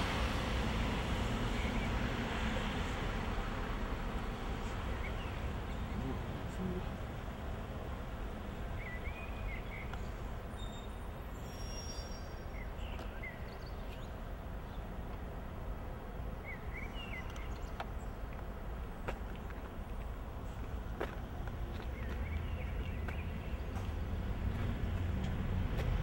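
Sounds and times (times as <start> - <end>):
low street rumble: 0.0 - 26.0
bird chirping: 8.6 - 14.9, 16.4 - 18.3, 21.7 - 24.7.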